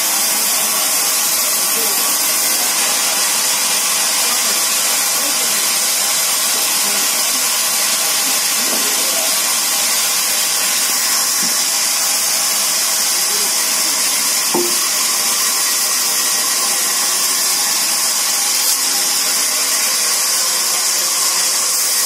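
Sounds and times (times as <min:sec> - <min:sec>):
band saw cutting log: 0:00.0 - 0:22.0.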